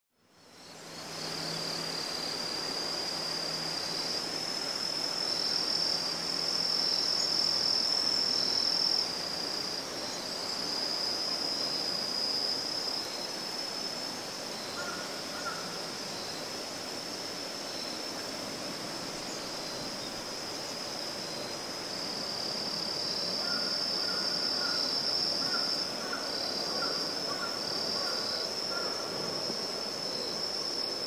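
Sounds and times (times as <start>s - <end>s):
insects trilling: 0.3s - 31.0s.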